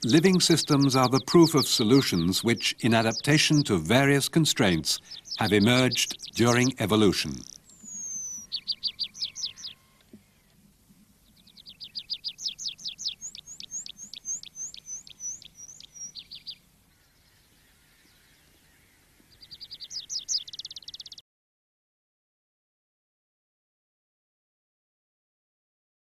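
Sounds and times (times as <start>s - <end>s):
songbird singing high notes: 0.0s - 10.0s, 11.3s - 16.6s, 19.4s - 21.2s.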